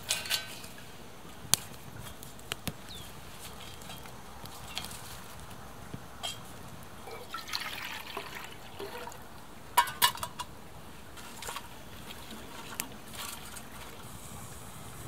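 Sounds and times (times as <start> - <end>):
twigs crackling: 0.0 - 7.0
metal cup clanking on stove: 9.8 - 10.5.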